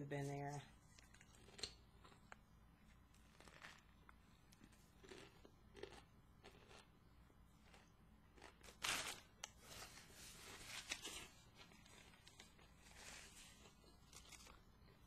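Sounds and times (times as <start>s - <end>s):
chewing and crunching sandwich: 0.8s - 15.0s.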